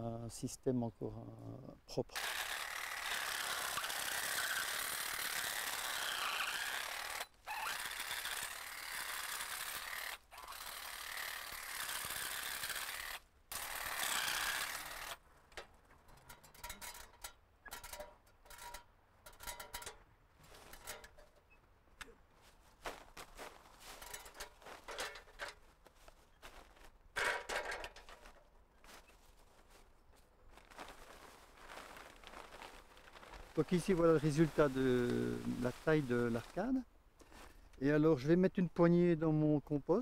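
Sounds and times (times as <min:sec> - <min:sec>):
powered hedge shears buzzing: 0:02.2 - 0:15.2.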